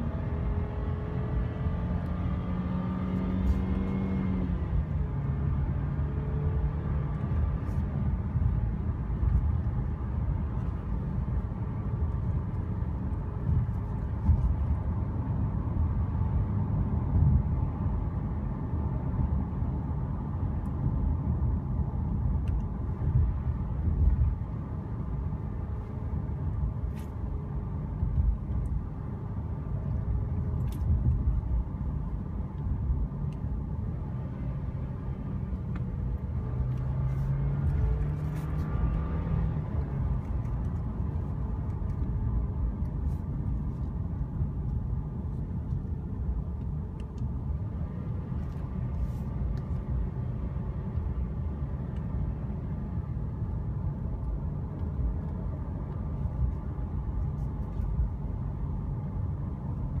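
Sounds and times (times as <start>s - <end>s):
car engine: 0.0s - 60.0s.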